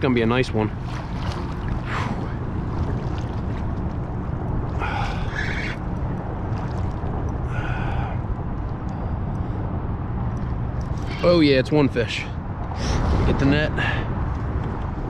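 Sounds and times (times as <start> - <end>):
wind rumble on microphone: 0.0 - 15.0
water lapping against kayak hull: 0.2 - 8.1
short rasps: 4.8 - 5.8.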